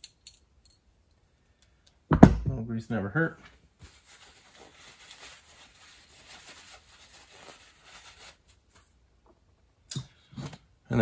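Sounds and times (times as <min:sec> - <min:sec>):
paper towel rustling and crumpling: 0:03.8 - 0:09.0.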